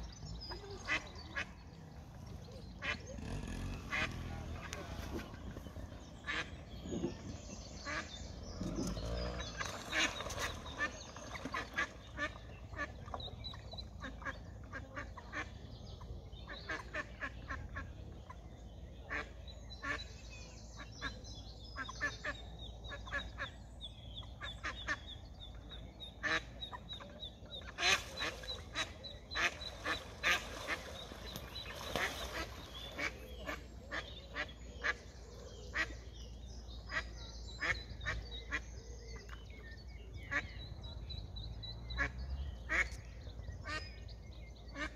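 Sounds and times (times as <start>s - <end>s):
ducks quacking: 0.5s - 1.8s, 2.5s - 15.8s, 24.3s - 35.1s, 41.8s - 44.9s.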